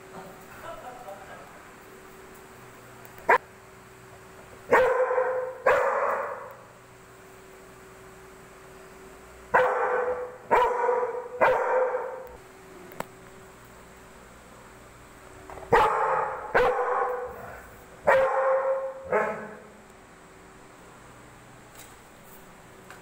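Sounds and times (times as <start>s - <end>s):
dog barking: 4.7s - 6.6s, 9.5s - 12.3s, 15.7s - 19.7s.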